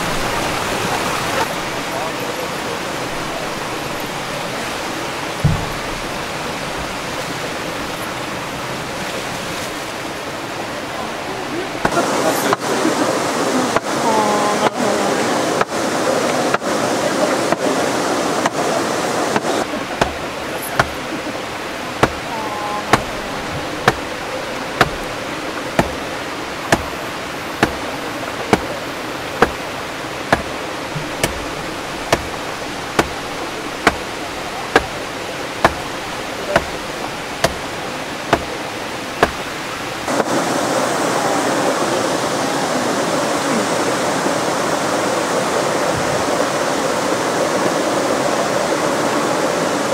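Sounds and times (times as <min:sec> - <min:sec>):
water rushing: 0:00.0 - 0:49.9
hammer knocking on wood: 0:05.4 - 0:06.0, 0:19.4 - 0:20.2, 0:20.8 - 0:21.0, 0:22.0 - 0:22.3, 0:22.9 - 0:24.1, 0:24.8 - 0:25.1, 0:25.8 - 0:26.1, 0:26.7 - 0:27.0, 0:27.6 - 0:27.9, 0:29.4 - 0:29.6, 0:30.3 - 0:36.8, 0:37.4 - 0:37.7, 0:38.3 - 0:38.6, 0:39.2 - 0:39.5.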